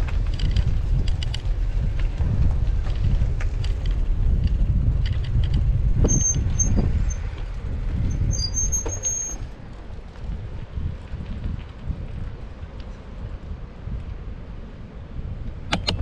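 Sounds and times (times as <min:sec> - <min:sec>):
wind buffeting microphone: 0:00.0 - 0:16.0
short high-pitched squeals: 0:06.1 - 0:06.8, 0:08.1 - 0:09.4.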